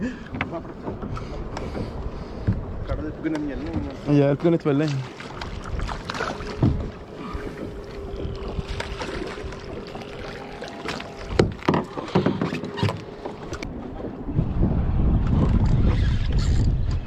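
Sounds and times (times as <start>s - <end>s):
wind and water rumble: 0.0s - 17.0s
knocks inside a fibreglass boat: 6.6s - 6.9s, 11.3s - 13.1s.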